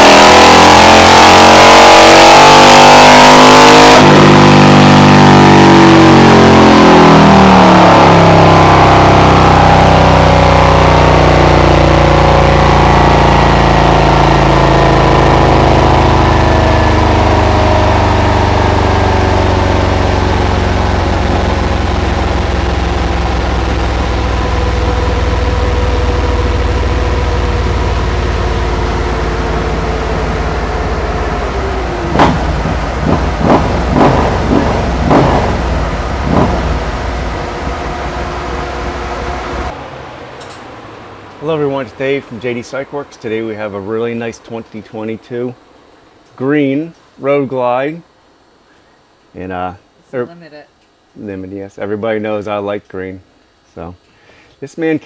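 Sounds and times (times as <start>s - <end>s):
motorcycle engine: 0.0s - 42.8s
dyno rollers whine: 0.0s - 44.6s
engine throttle blips: 0.0s - 44.7s.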